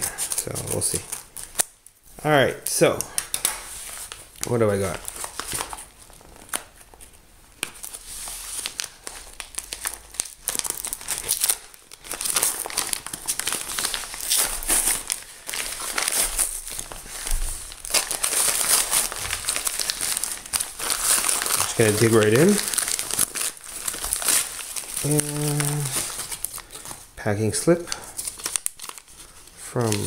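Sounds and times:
paper and plastic crinkling: 0.0s - 1.8s, 2.6s - 30.0s.

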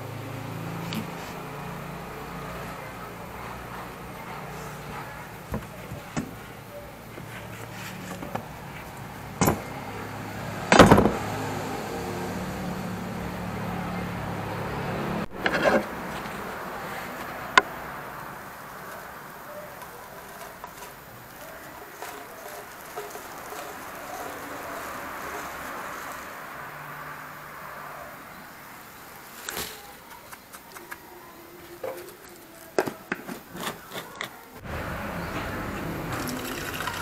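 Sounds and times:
knocks and clunks from handling objects: 9.4s - 9.7s, 10.7s - 11.3s.

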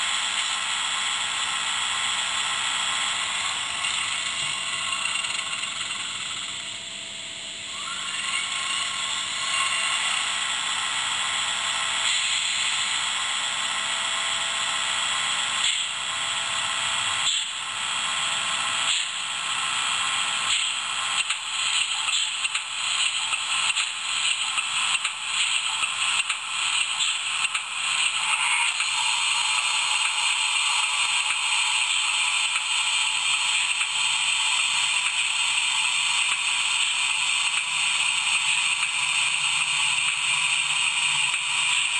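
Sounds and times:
mechanical clatter: 0.2s - 6.8s, 18.8s - 41.9s
steam hiss from small speaker: 7.7s - 13.7s, 17.1s - 17.8s, 18.5s - 41.9s.

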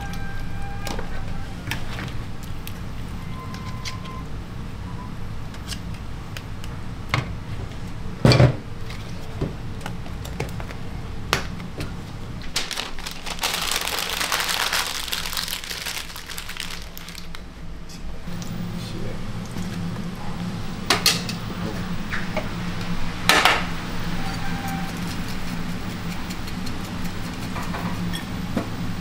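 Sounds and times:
steady low hum: 16.4s - 29.0s.

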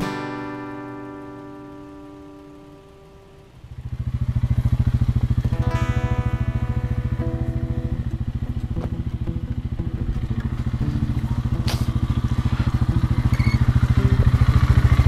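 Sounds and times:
atv engine running: 0.0s - 15.0s
sharp click: 11.6s - 12.0s.

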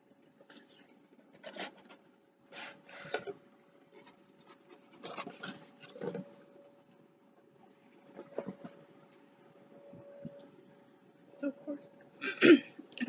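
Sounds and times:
cardboard box scraping and rustling: 4.0s - 6.3s.

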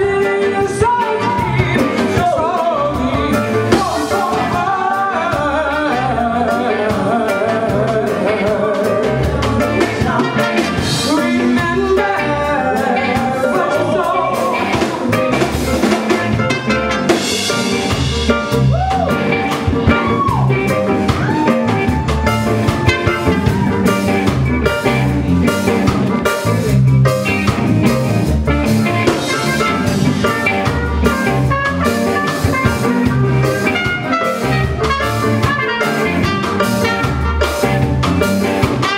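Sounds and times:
person singing: 0.0s - 16.4s
drum kit and bass beat: 0.0s - 38.9s
live reggae band playing: 0.0s - 38.9s.

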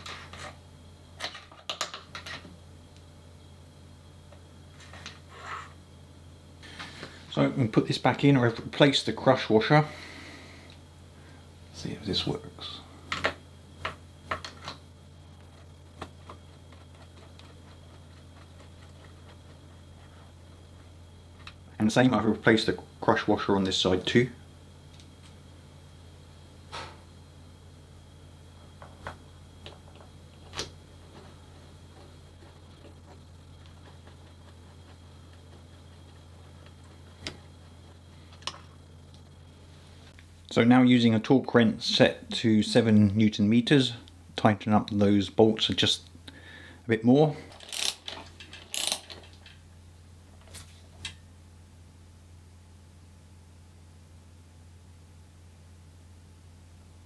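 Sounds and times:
steady low hum: 0.0s - 57.0s
tool clicks on bolts: 47.6s - 49.4s.

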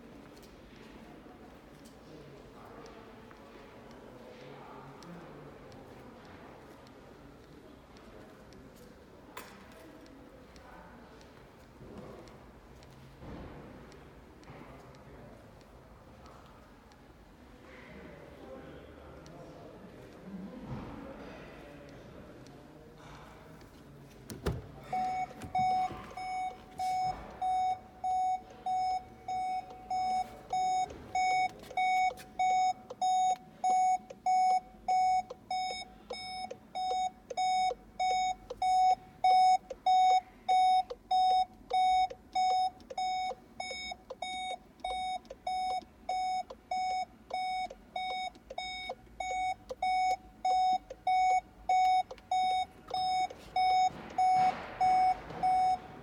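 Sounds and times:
in-car warning chime beeping: 24.8s - 56.0s.

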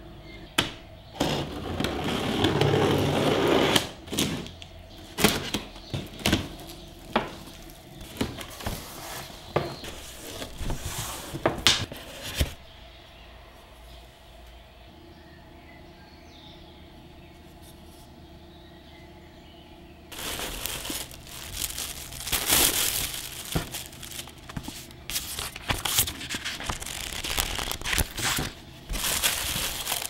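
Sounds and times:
cardboard flaps knocking and rustling: 5.2s - 12.6s, 20.1s - 30.0s.

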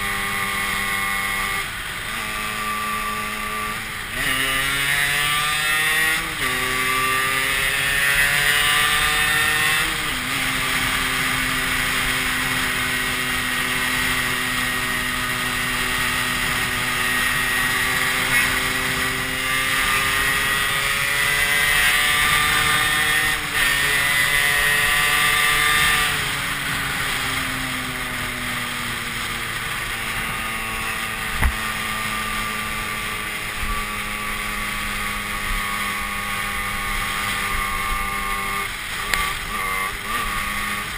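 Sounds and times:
motorcycle engine running: 0.0s - 40.9s
wind and road noise: 0.0s - 40.9s
sharp thump: 31.3s - 31.6s.

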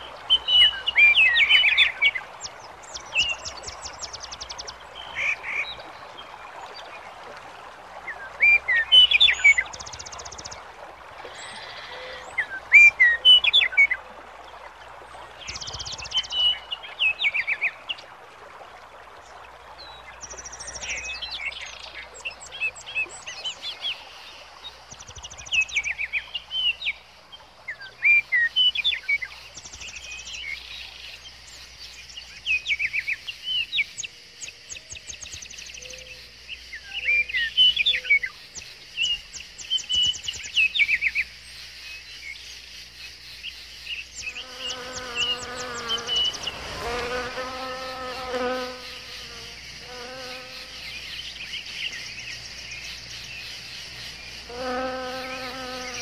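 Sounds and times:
high insect hiss: 23.6s - 56.0s
songbirds chirping and singing: 43.4s - 56.0s
flying insect buzzing: 44.3s - 51.0s, 54.3s - 56.0s.

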